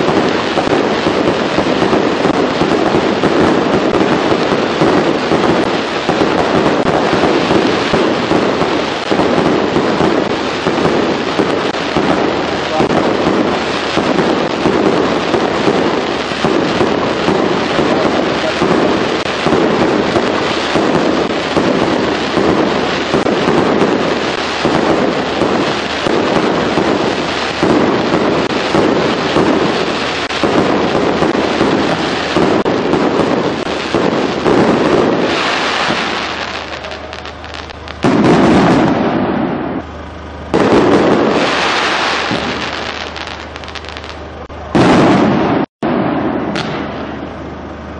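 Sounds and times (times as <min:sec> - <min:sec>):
fireworks bangs and crackling: 0:00.0 - 0:47.9
loud firework blasts: 0:00.0 - 0:47.9.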